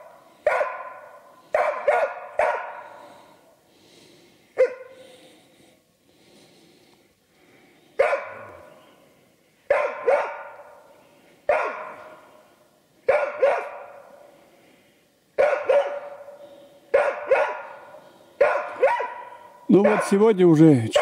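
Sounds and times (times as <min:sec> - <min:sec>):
dog barking with echo: 0:00.0 - 0:03.1, 0:04.6 - 0:05.0, 0:08.0 - 0:08.7, 0:09.7 - 0:10.8, 0:11.5 - 0:12.2, 0:13.1 - 0:14.2, 0:15.4 - 0:20.3.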